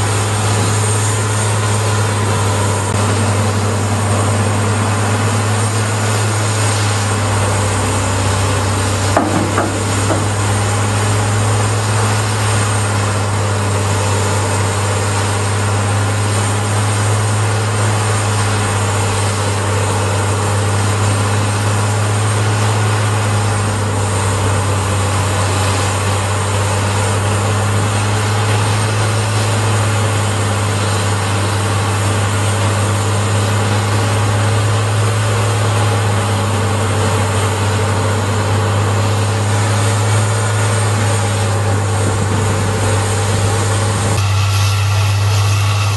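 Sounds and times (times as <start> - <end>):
grinder engine and rotor drone: 0.0 - 45.9
knocks in grinder: 9.0 - 11.4.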